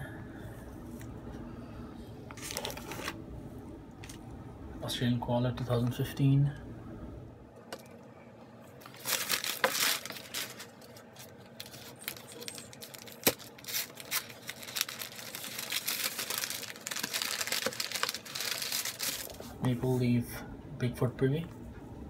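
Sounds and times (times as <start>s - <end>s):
packing paper rustling: 2.4s - 3.2s, 8.8s - 19.6s.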